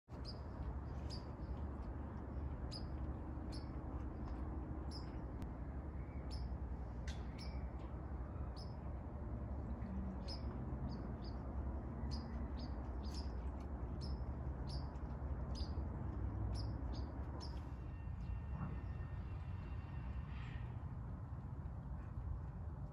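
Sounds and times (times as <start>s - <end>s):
small bird chirping: 0.1s - 9.0s, 9.7s - 18.4s
low background rumble: 0.1s - 22.9s.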